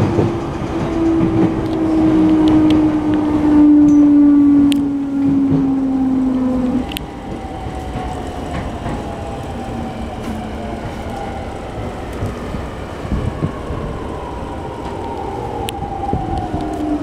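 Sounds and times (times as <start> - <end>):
electric train motor whining: 0.0 - 17.0
wheels rumbling on rails: 0.0 - 17.0.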